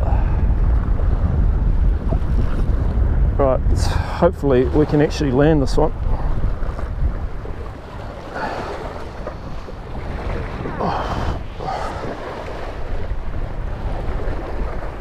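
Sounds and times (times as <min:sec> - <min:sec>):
sea waves washing against rocks: 0:00.0 - 0:15.0
wind rumbling on microphone: 0:00.0 - 0:15.0.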